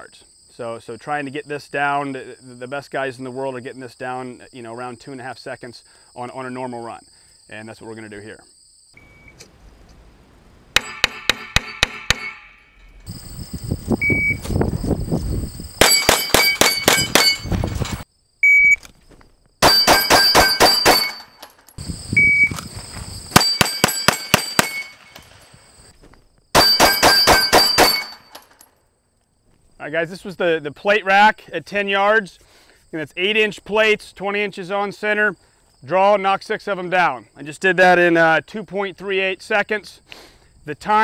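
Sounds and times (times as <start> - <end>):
steel plate clang and ring: 10.8 - 13.1, 15.8 - 17.6, 19.6 - 21.7, 23.4 - 25.2, 26.6 - 28.6
shot timer beep: 14.0 - 14.4, 18.4 - 18.8, 22.2 - 22.5
rapid pistol shots: 15.8 - 17.4, 19.6 - 21.3, 23.4 - 25.0, 26.6 - 28.3.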